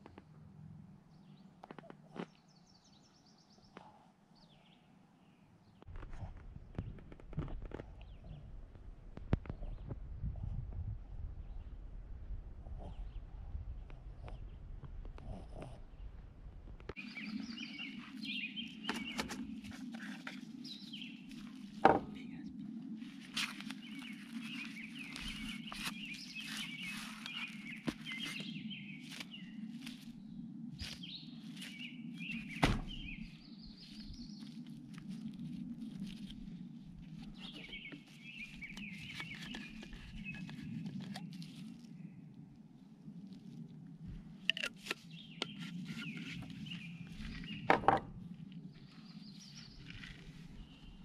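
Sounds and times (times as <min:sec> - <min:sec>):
small birds chirping: 0:01.1 - 0:06.0, 0:16.9 - 0:42.3, 0:44.4 - 0:51.0
knocks on camp table: 0:21.8 - 0:22.1, 0:47.7 - 0:48.1.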